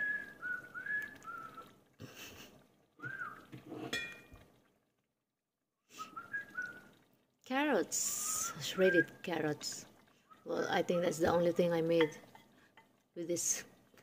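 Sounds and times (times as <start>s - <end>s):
person whistling a tune: 0.0s - 1.7s, 3.0s - 3.4s
kitchenware clinking: 3.6s - 4.3s, 11.9s - 12.5s.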